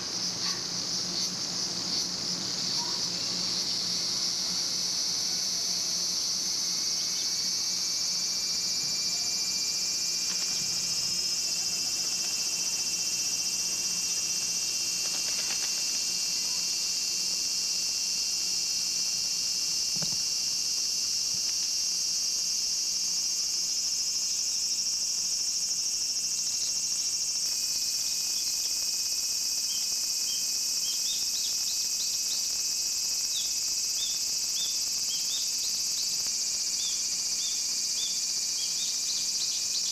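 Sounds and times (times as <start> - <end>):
cicada chorus buzzing: 0.0 - 39.9.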